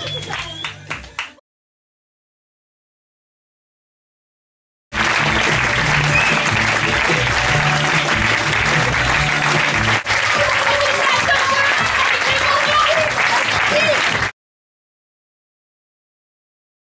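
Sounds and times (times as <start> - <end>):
audience applause: 4.9 - 14.3
loud music: 5.0 - 14.3.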